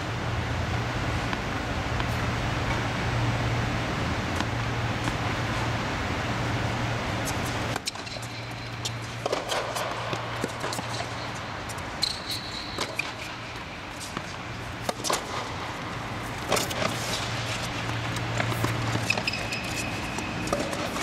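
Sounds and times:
ball bouncing on hard court: 7.2 - 21.0
racket striking tennis ball: 7.2 - 21.0
high squeak: 12.0 - 13.0, 19.0 - 20.2.

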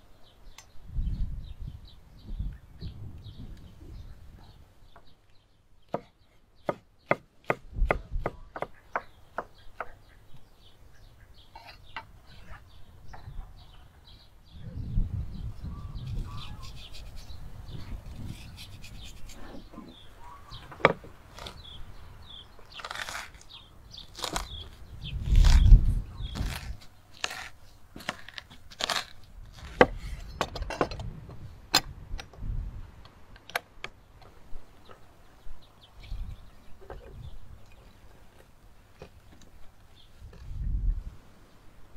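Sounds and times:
wooden pestle crushing in bowl: 24.1 - 24.6, 26.3 - 30.0.

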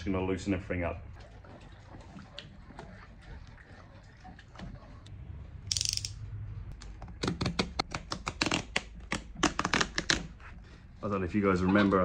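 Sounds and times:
utility knife clicks and snaps: 5.7 - 6.2.

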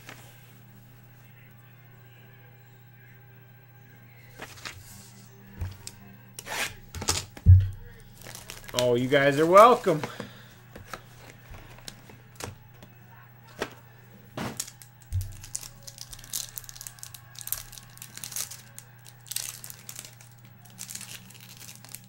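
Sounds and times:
foil wrapper crinkling: 5.6 - 12.9, 13.5 - 22.0.

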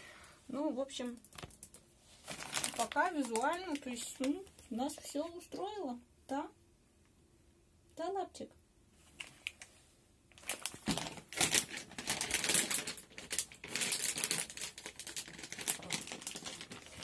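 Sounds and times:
plastic pouch crinkling: 1.2 - 5.1, 10.3 - 17.0.

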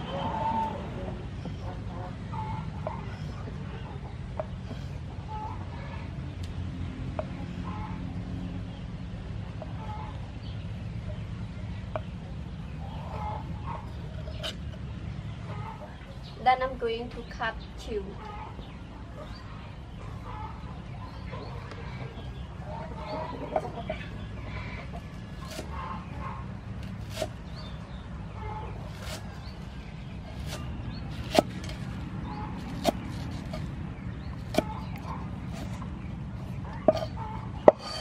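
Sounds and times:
cleaver chopping on wooden board: 31.2 - 31.8, 36.8 - 38.0.

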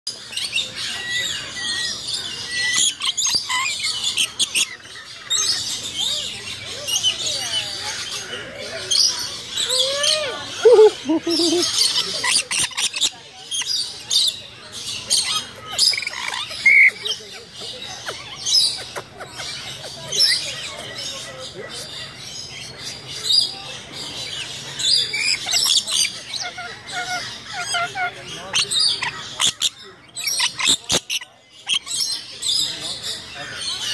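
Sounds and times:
lorikeets chirping and squawking: 0.1 - 33.9
parrots screeching: 0.3 - 14.4, 15.1 - 17.2, 24.5 - 33.9.

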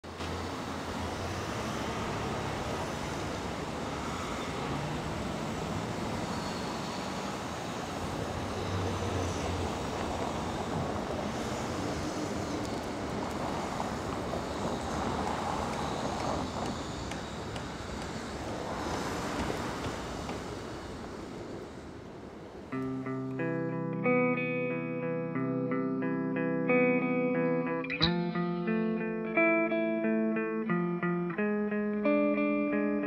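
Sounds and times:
cars passing close by: 0.0 - 25.1
road noise: 0.0 - 33.0.

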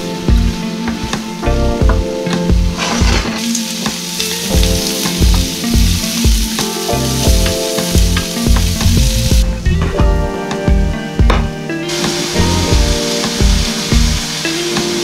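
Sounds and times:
background music with a beat: 0.0 - 15.0
meat sizzling in a grill pan: 2.8 - 9.5, 11.9 - 15.0.

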